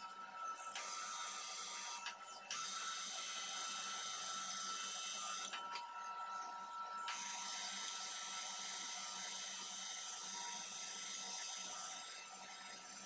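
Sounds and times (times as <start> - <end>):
welder wire feed whining: 0.0 - 13.0.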